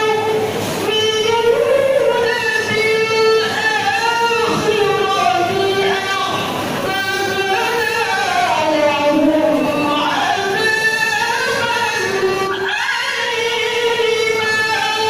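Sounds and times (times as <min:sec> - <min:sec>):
woman reciting melodically: 0:00.0 - 0:15.0.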